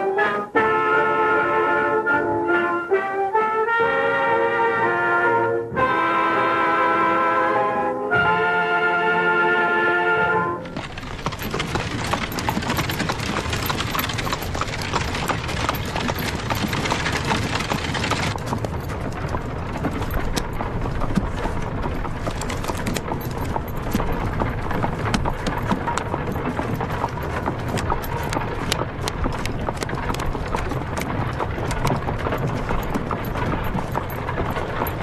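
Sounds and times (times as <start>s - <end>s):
horses' hooves clattering: 10.6s - 35.0s.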